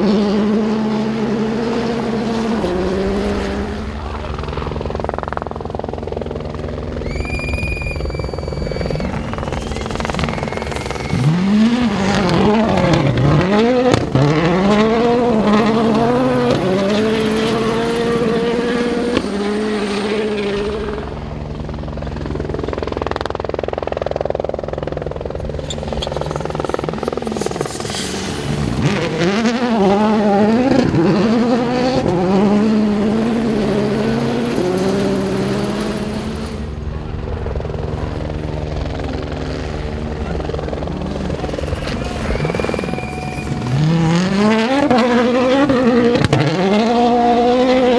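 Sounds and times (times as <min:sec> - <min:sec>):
rally cars revving past: 0:00.0 - 0:04.1, 0:10.1 - 0:21.1, 0:26.0 - 0:36.7, 0:41.0 - 0:47.9
steady low drone: 0:00.9 - 0:46.5
brief high whistle: 0:07.0 - 0:11.6, 0:42.1 - 0:43.7.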